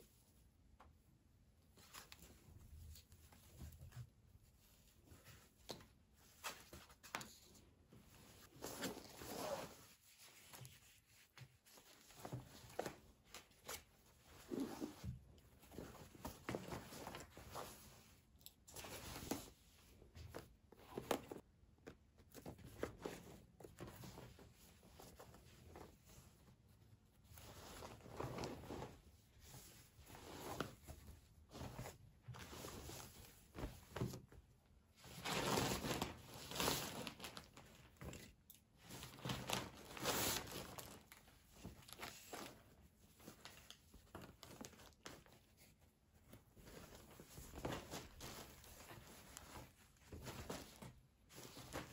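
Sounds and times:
fabric and plastic bags rustling: 5.0s - 21.4s, 27.2s - 51.9s.

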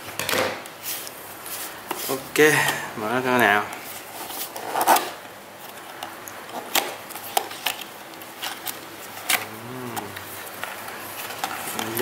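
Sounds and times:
cardboard crinkling: 3.9s - 12.0s.

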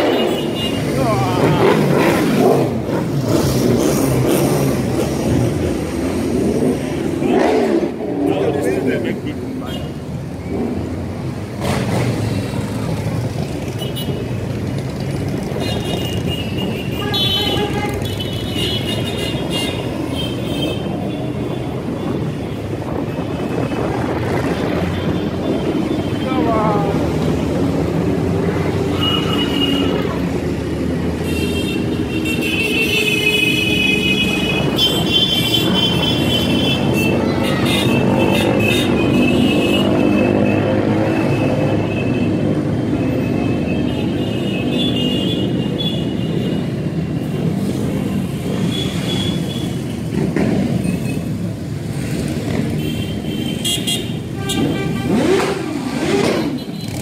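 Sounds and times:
motorcycles riding past: 0.0s - 17.0s, 46.7s - 57.0s.

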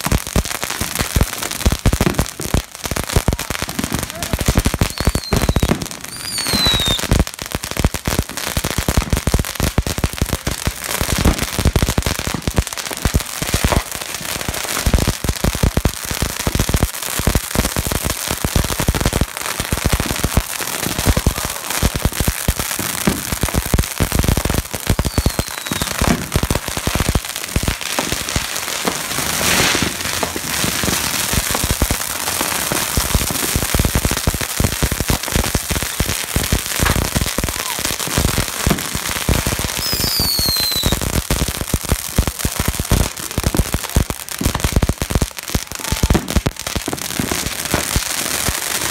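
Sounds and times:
firecrackers crackling: 0.0s - 48.9s
short falling whistles: 39.8s - 41.0s.

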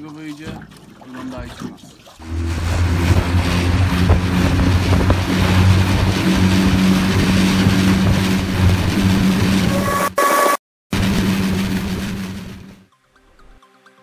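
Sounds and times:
wind and water rushing: 2.2s - 9.9s
outboard motor running: 2.2s - 10.1s, 11.0s - 12.9s.

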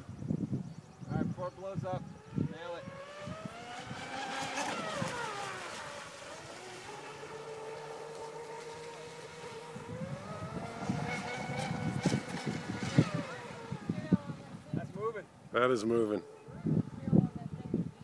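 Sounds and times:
boat motor whining: 2.0s - 15.2s.

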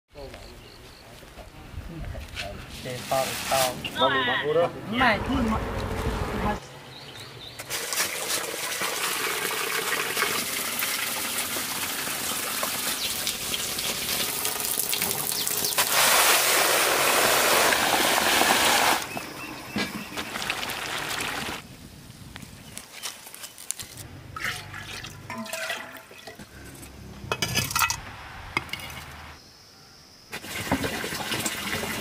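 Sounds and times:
water running and splashing: 7.7s - 19.2s, 19.9s - 21.6s, 30.4s - 32.0s.

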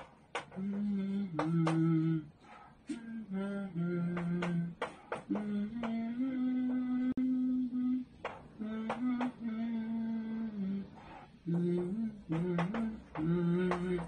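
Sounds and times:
man singing long notes: 0.6s - 2.3s.

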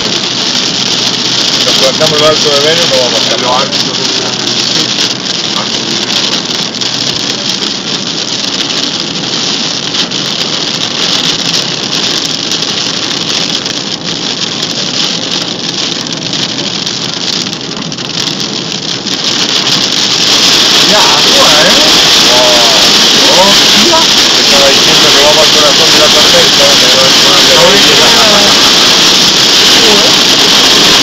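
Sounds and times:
car engine: 0.0s - 31.0s
heavy rain on car roof: 0.0s - 31.0s
tyres on wet road: 0.0s - 31.0s.

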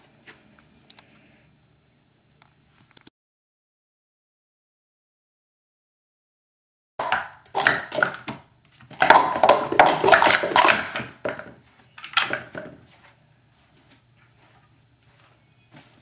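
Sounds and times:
plastic cups clattering: 7.0s - 12.8s.

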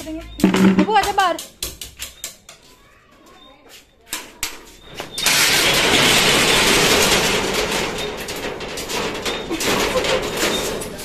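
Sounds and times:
metal shutter slats rattling: 5.1s - 11.0s.

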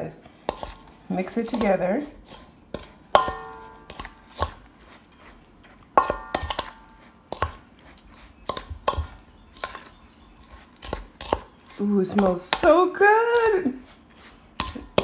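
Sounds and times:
spoon scraping metal bowl: 0.4s - 15.0s
metal bowl ringing: 3.2s - 4.0s.

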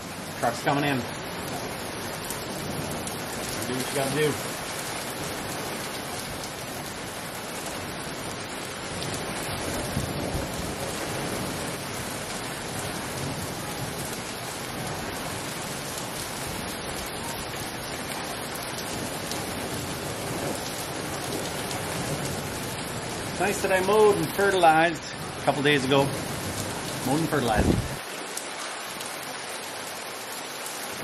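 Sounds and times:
heavy rain: 0.0s - 31.0s
thunder rumbling: 7.8s - 28.0s.

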